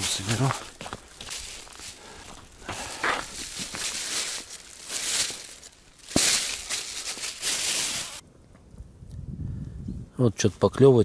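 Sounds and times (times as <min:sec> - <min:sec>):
footsteps crunching on ice: 0:00.0 - 0:08.2
plastic bag crinkling: 0:00.4 - 0:08.2.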